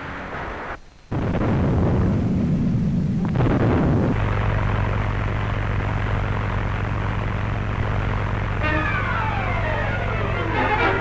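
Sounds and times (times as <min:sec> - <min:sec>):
biplane engine drone: 0:00.0 - 0:11.0
battleship gunfire rumble: 0:01.1 - 0:06.9.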